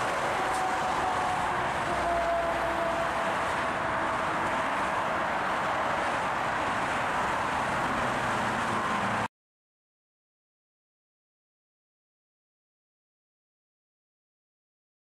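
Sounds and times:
dense highway traffic: 0.0 - 9.3
passing vehicle whine: 0.0 - 9.3.

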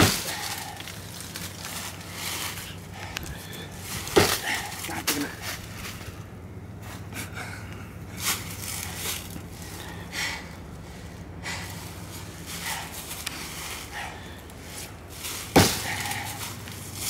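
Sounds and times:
axe chopping tree trunk: 0.0 - 1.0, 3.9 - 5.3, 14.7 - 16.6
person breathing: 2.0 - 5.5, 6.8 - 15.1, 15.8 - 16.7.

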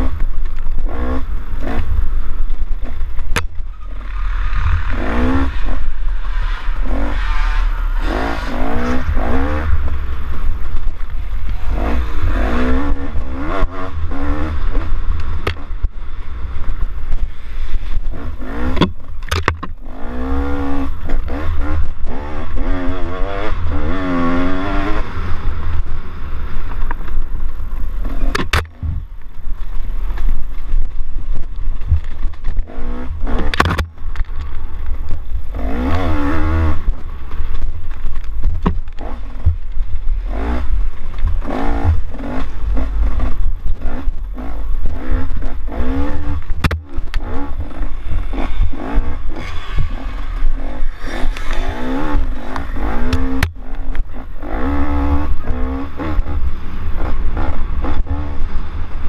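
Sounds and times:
dirt bike engine revving: 0.0 - 26.6, 32.5 - 33.8, 35.5 - 37.2, 38.6 - 59.0
wind rumble on microphone: 0.0 - 59.0
sharp knocks from bumps: 46.4 - 47.2.

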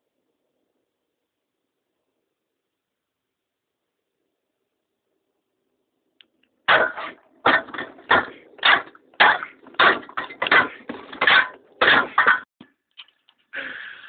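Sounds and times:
spade slapping down hard: 6.7 - 12.4.

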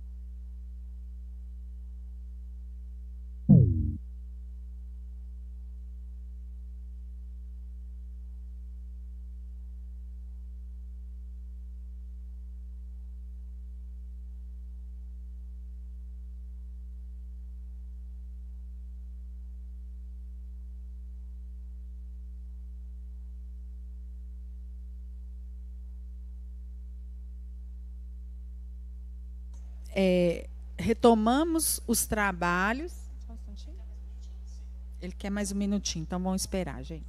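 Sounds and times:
low electrical hum: 0.0 - 37.0
loud low thump: 3.5 - 4.0.

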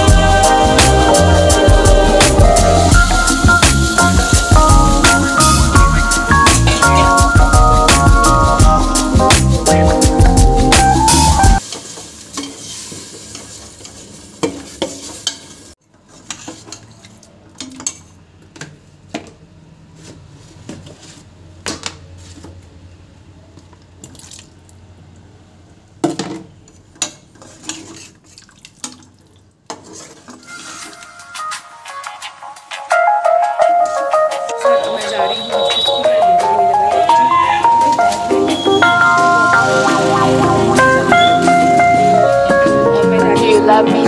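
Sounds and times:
sizzling hiss: 0.0 - 7.0, 11.1 - 15.8, 37.8 - 42.2
ladle scraping steel pot: 16.0 - 18.2, 26.7 - 28.4, 29.7 - 31.2.

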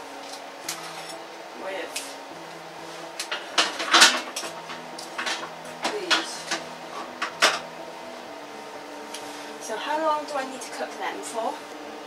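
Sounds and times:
metal trays and racks clattering: 3.2 - 7.7.

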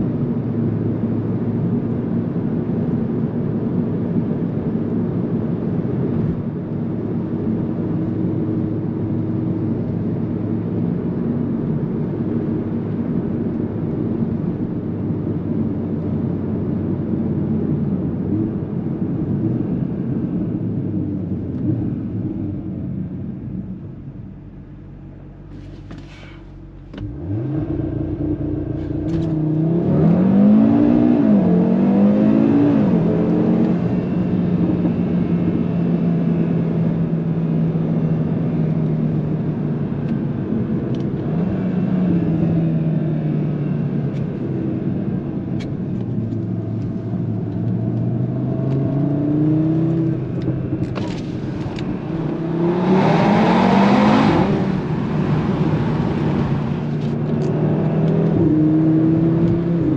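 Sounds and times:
car engine accelerating through gears: 24.7 - 59.9.

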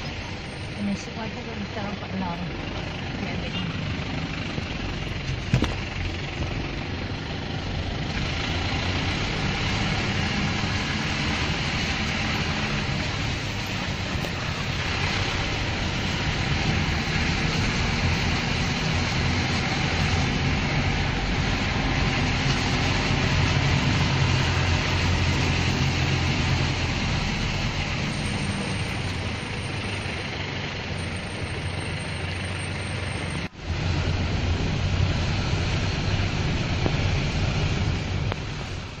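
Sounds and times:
heavy rain falling: 8.1 - 29.6.

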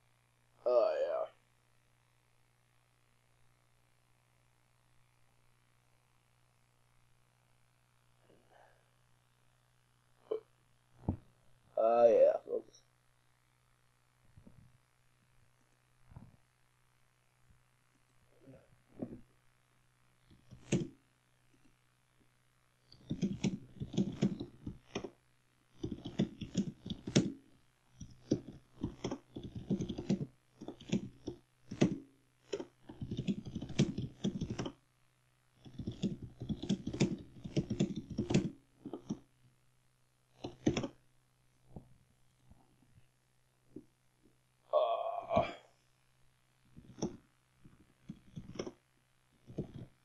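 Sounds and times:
typing on computer keyboard: 20.4 - 20.9, 22.9 - 25.1, 25.8 - 27.4, 28.0 - 34.8, 35.6 - 39.2, 40.4 - 40.9.

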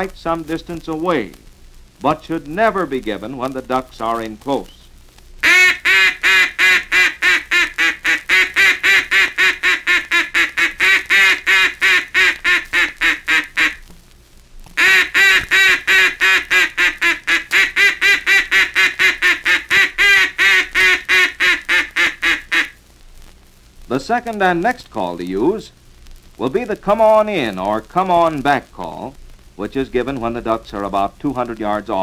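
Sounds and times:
duck call quacks: 5.4 - 13.8, 14.8 - 22.8.

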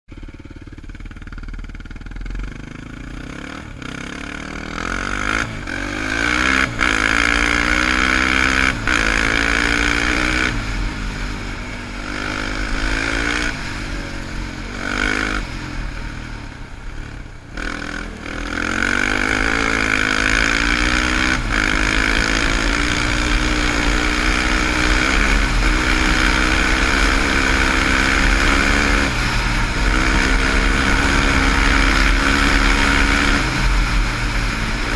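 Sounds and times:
quad engine accelerating: 0.1 - 34.9.

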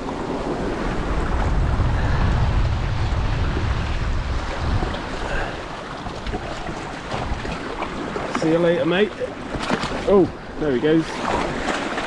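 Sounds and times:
wind buffeting microphone: 0.0 - 11.8
sea water splashing on rocks: 3.0 - 10.4, 11.0 - 12.0.

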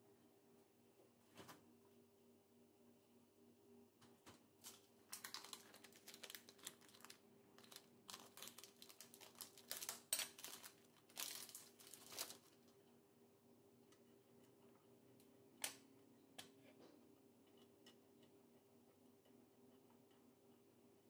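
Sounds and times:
plastic packaging crinkling: 4.6 - 12.7.

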